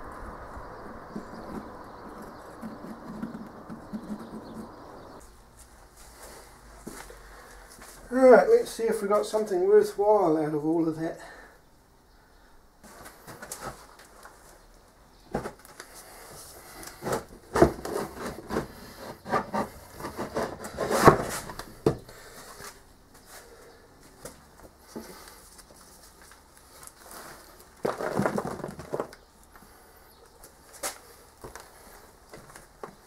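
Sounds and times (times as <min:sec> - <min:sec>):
sand crumbling and scraping: 0:00.0 - 0:05.3.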